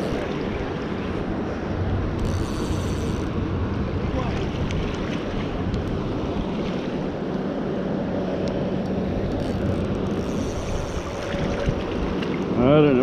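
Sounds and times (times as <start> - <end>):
water washing around: 2.8 - 7.3, 10.4 - 13.0
wind buffeting microphone: 9.2 - 13.0.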